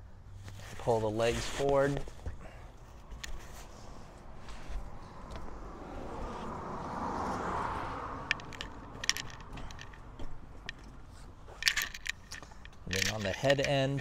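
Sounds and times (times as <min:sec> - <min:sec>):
camp cot rustling: 0:00.3 - 0:02.4
sharp metallic clicks: 0:08.2 - 0:11.0, 0:11.6 - 0:14.0.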